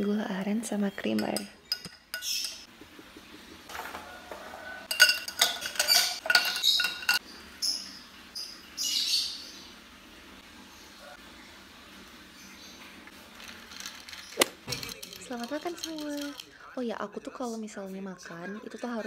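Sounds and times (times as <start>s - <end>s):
ice cubes clinking in glass: 4.9s - 7.2s, 13.4s - 16.5s.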